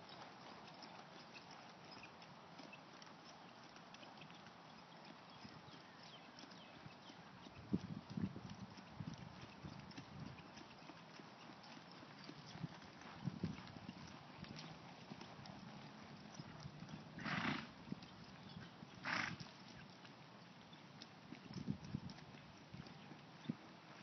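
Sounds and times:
horse hoofbeats on dirt: 0.0s - 24.0s
horse snorting: 17.2s - 17.8s, 19.0s - 19.5s.

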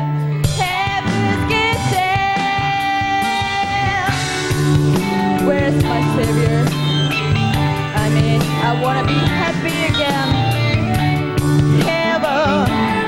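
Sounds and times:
bass guitar: 0.0s - 13.0s
drums: 0.0s - 13.0s
electric guitar: 0.0s - 13.0s
woman singing: 0.5s - 7.0s, 7.9s - 10.6s, 11.8s - 13.0s.

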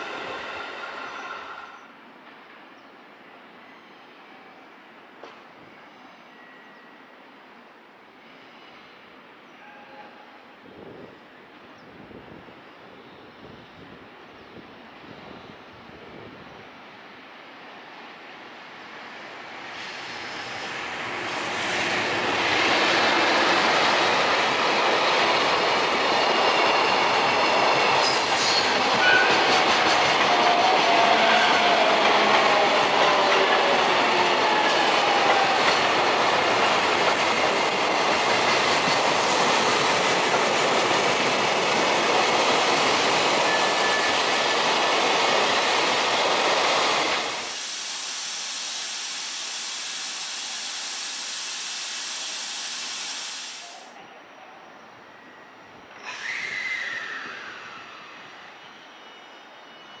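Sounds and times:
train wheels on rails: 0.0s - 2.7s, 5.2s - 5.5s, 18.6s - 54.0s.

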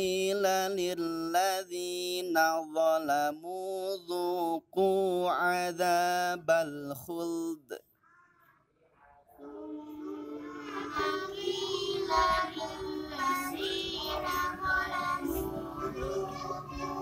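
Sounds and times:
children chanting melodically: 9.3s - 17.0s.

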